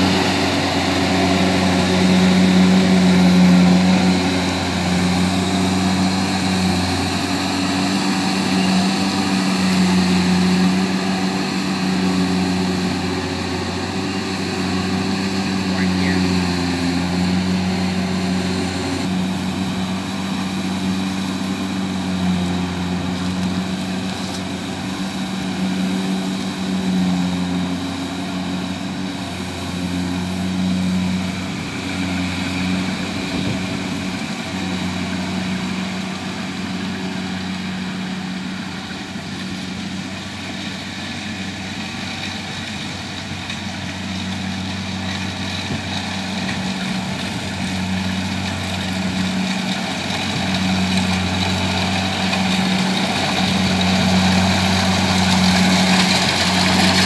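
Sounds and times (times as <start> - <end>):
combine harvester diesel engine: 0.0 - 57.0.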